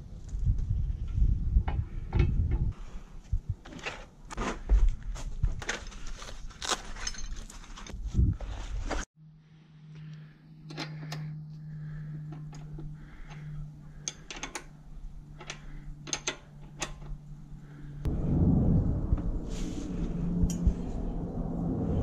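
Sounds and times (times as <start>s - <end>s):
metal tools clinking: 6.7s - 8.0s
steady low hum: 9.2s - 22.0s.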